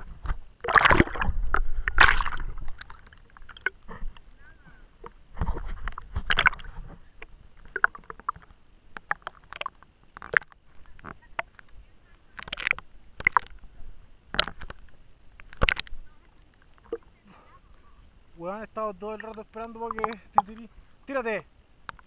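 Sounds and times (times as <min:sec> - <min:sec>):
water sloshing and splashing: 0:00.0 - 0:17.2
water gurgles: 0:00.0 - 0:22.0.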